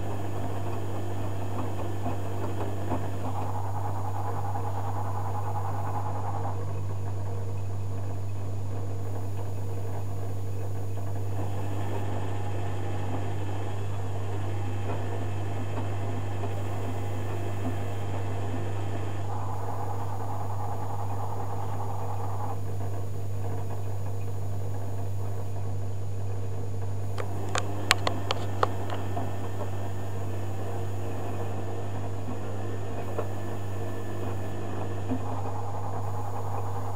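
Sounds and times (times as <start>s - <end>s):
low hum: 0.0s - 36.9s
sharp clicks: 27.1s - 29.8s.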